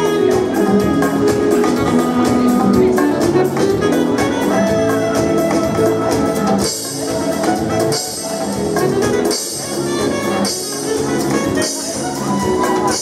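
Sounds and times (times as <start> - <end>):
upbeat brass music with drums: 0.0 - 13.0.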